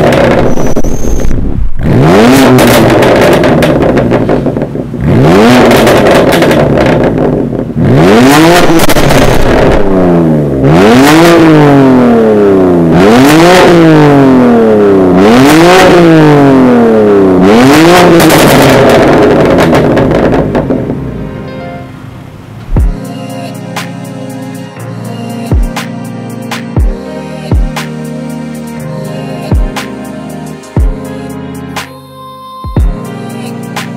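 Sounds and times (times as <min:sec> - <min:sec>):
car engine revving: 0:00.0 - 0:21.4.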